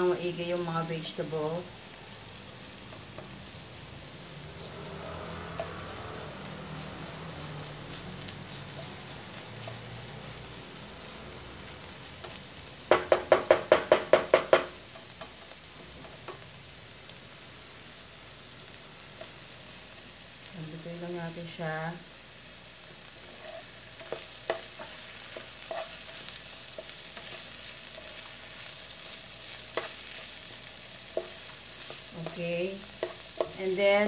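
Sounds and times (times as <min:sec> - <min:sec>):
food sizzling in a wok: 0:00.0 - 0:34.0
spatula stirring: 0:04.5 - 0:15.5, 0:23.1 - 0:34.0.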